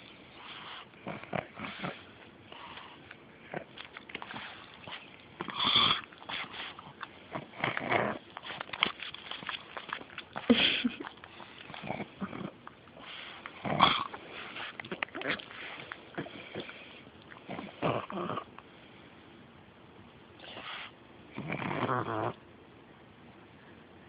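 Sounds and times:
dog sniffing: 0.3 - 3.2, 4.2 - 7.2, 13.0 - 17.8, 20.4 - 21.0
dog snorting: 0.4 - 18.5.

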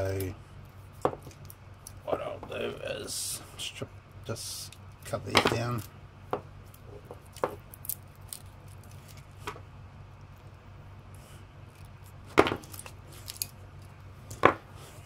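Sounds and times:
handling noises: 4.7 - 10.5, 11.7 - 15.0.

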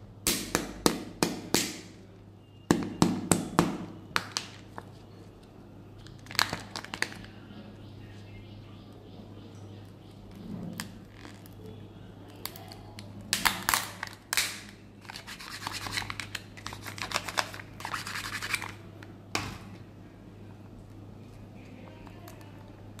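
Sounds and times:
foil and plastic crinkling: 6.2 - 7.4.

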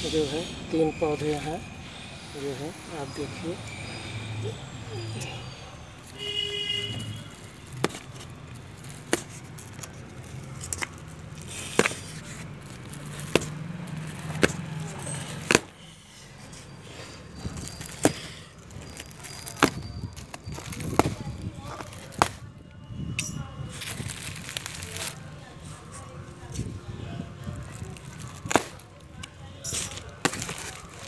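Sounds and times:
knocks and crinkles of packaging: 6.0 - 15.7, 17.4 - 22.5, 23.7 - 25.3, 27.5 - 31.0.

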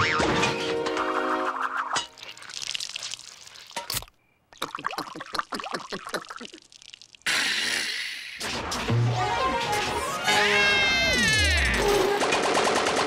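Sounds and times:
soft liquid trickling: 2.0 - 7.3
cartoon gurgling and bubbling: 4.5 - 8.2.

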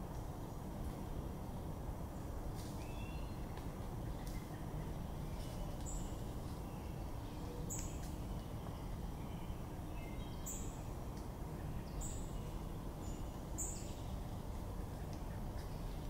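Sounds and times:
low outdoor background noise: 0.0 - 16.0.

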